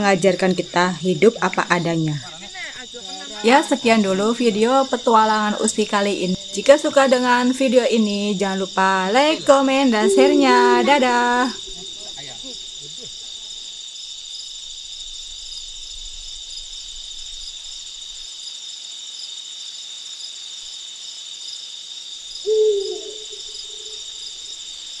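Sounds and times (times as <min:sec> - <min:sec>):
night insects chirring: 0:00.0 - 0:25.0
owl hoot: 0:10.0 - 0:12.0, 0:22.4 - 0:24.0.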